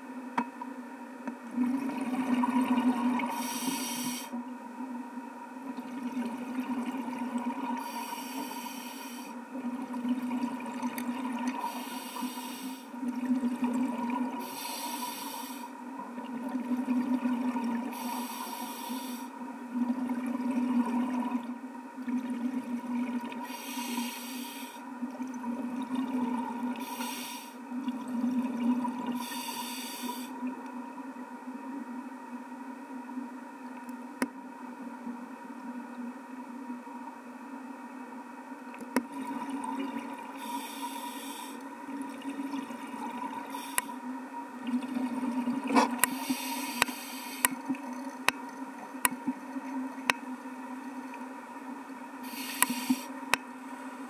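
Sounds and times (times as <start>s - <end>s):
steady hum: 0.0s - 54.0s
exhaled bubbles rushing: 1.6s - 3.3s, 19.8s - 23.4s, 25.2s - 26.8s, 44.6s - 46.1s
regulator inhalation hiss: 3.3s - 4.4s, 7.8s - 9.4s, 11.6s - 13.0s, 14.4s - 15.8s, 17.9s - 19.4s, 23.4s - 24.9s, 26.8s - 27.6s, 29.2s - 30.4s, 40.4s - 41.6s, 43.5s - 44.0s, 46.0s - 47.6s, 52.2s - 53.2s.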